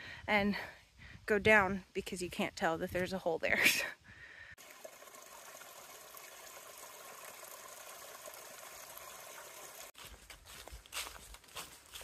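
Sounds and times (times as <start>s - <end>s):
water trickling over rocks: 4.6s - 10.0s
footsteps in dry leaves: 9.9s - 12.0s.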